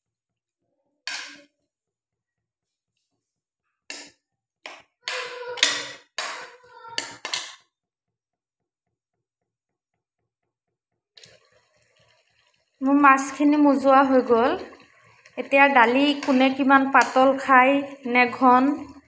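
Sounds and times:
spoon scraping a steel wok: 14.2 - 19.0.

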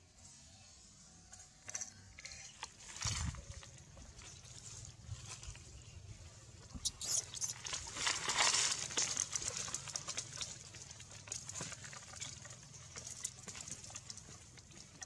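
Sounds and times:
animals rustling dry leaves: 7.1 - 14.3.

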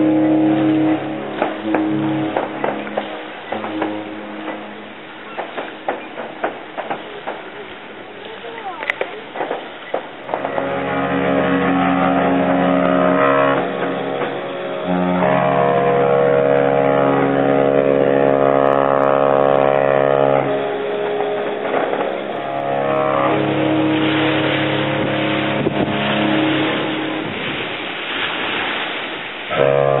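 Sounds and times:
ship horns blasting: 0.0 - 6.2, 10.2 - 30.0
rushing hiss: 19.7 - 30.0.

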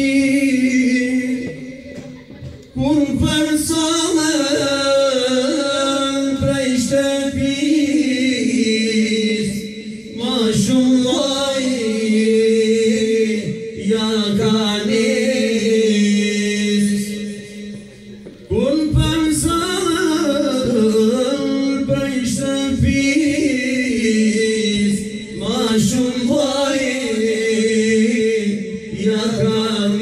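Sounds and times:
man singing into a microphone: 0.0 - 30.0.

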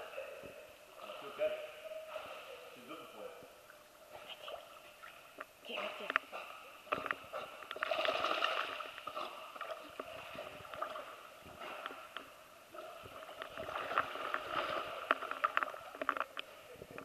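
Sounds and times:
water sloshing and splashing: 4.4 - 17.0.

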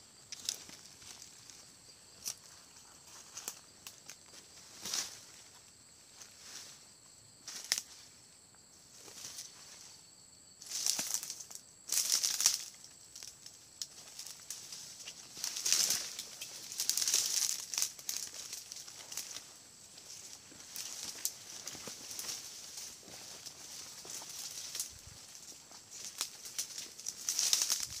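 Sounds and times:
footsteps through dry leaves: 10.6 - 13.3, 13.9 - 28.0
twigs snapping: 10.7 - 14.8, 15.4 - 19.5, 26.0 - 28.0.

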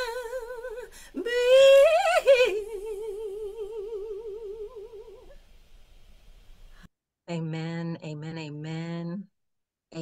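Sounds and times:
woman singing gospel song: 0.0 - 5.4.

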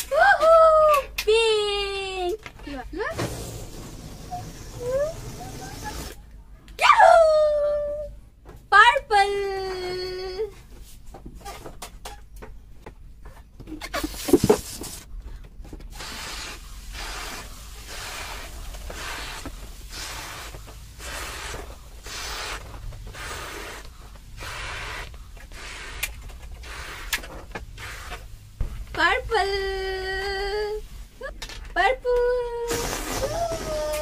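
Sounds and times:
rubbery balloon handling: 13.7 - 15.1, 32.7 - 34.0
breathy puffs into balloon: 32.7 - 33.9.

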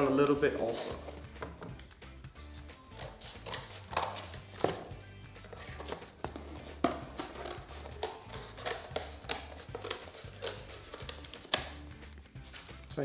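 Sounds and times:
scissors cutting cardboard: 2.7 - 12.8.

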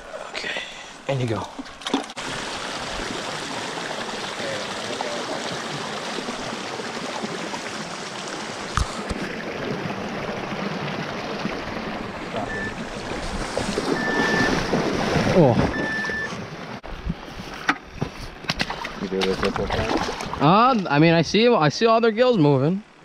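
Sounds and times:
creek water rushing over stones: 2.0 - 15.6
high steady beep: 12.4 - 12.8, 14.0 - 14.6, 15.7 - 16.4.

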